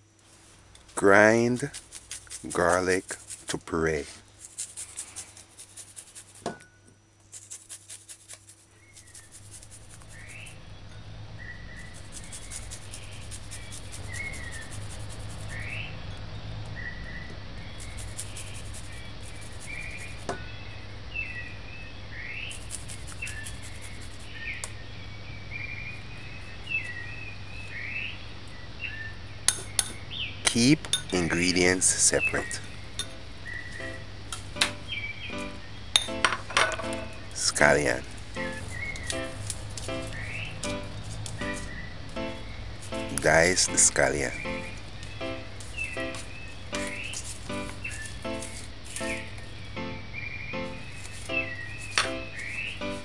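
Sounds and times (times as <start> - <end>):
garlic grated on metal grater: 1.3 - 3.7, 4.4 - 6.6, 7.3 - 10.5, 11.8 - 15.7
low steady hum: 8.8 - 31.4.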